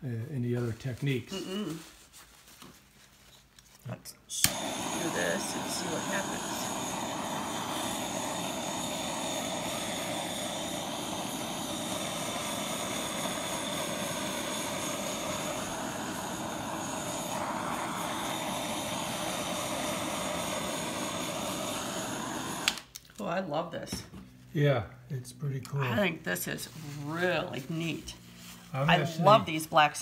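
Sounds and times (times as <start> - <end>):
blow torch flame hissing: 4.3 - 22.9.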